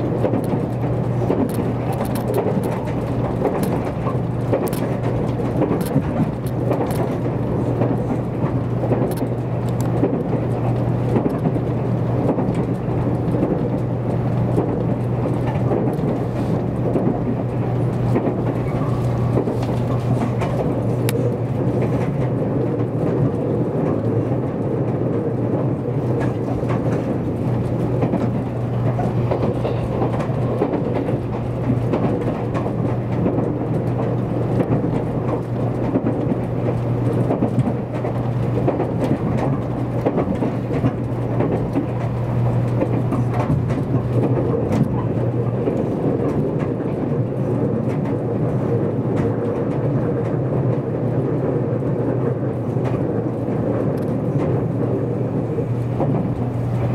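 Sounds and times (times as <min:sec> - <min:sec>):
small clicks and rattles: 0:00.0 - 0:25.3, 0:52.8 - 0:55.0
train wheels rumbling on rail: 0:00.0 - 0:56.9.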